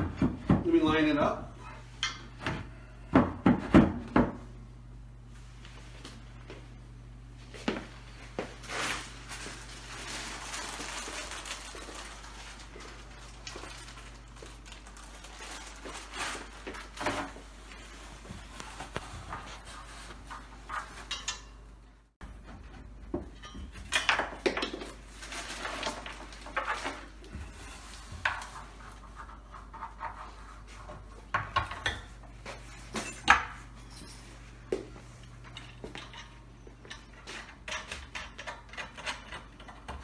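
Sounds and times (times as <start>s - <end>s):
low steady hum: 0.0s - 40.0s
bolts and nuts clinking: 23.3s - 25.0s, 25.6s - 27.2s.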